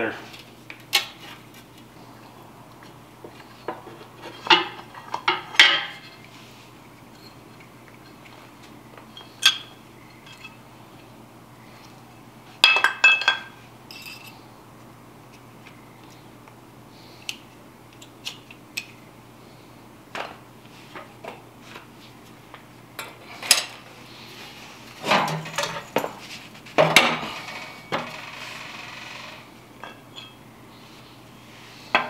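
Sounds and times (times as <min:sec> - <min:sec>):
faint steady hum: 0:00.0 - 0:32.0
metal tools clinking and clattering: 0:09.2 - 0:10.6, 0:12.6 - 0:14.4, 0:25.0 - 0:26.2.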